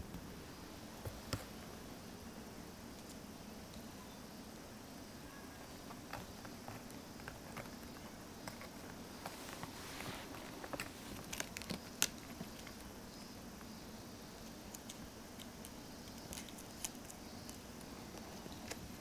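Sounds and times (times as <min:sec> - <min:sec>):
kitten claws scratching: 0:05.8 - 0:12.9, 0:14.6 - 0:19.0.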